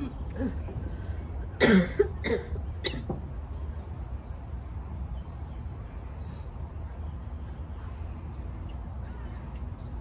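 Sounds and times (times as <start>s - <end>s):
woman coughing: 1.6s - 3.2s.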